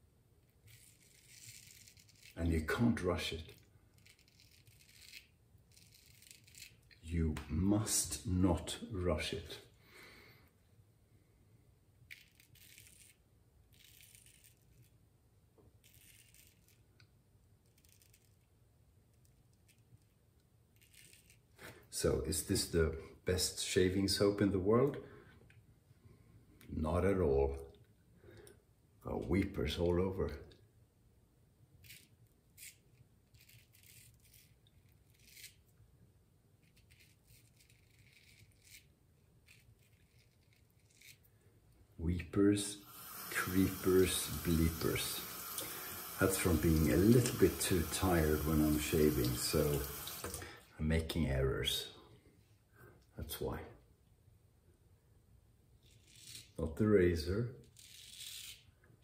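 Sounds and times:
razor scraping stubble: 0:00.6 - 0:07.0, 0:12.1 - 0:15.0, 0:15.8 - 0:16.9, 0:20.8 - 0:21.6, 0:31.8 - 0:35.7, 0:36.6 - 0:41.3, 0:42.9 - 0:50.4, 0:55.8 - 0:56.6, 0:57.6 - 0:58.7.

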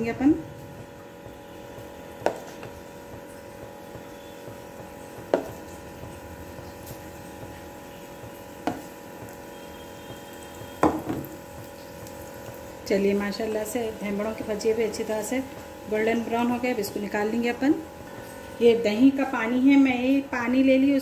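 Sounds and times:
steady hum: 0:00.0 - 0:21.0
utensil knocking frying pan: 0:01.2 - 0:06.6, 0:07.4 - 0:09.4, 0:10.0 - 0:12.8.

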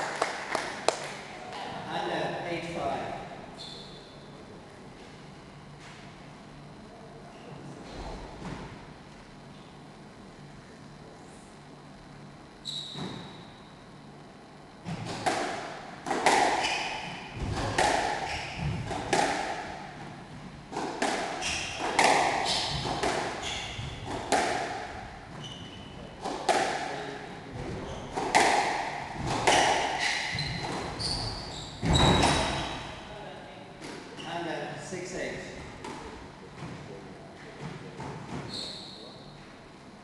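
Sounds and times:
squash ball hits echoing: 0:14.8 - 0:33.0
shoes squeaking on wooden floor: 0:25.3 - 0:26.1, 0:29.4 - 0:32.8.

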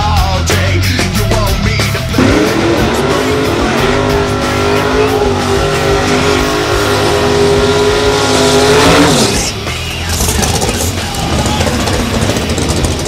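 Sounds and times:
tyres squealing: 0:02.2 - 0:12.0
car engine at high revs: 0:02.2 - 0:13.0.

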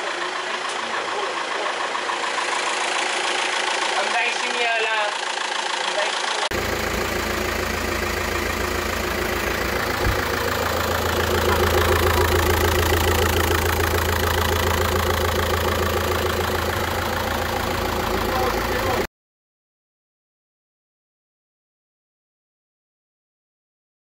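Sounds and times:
diesel engine idling: 0:00.0 - 0:19.1.

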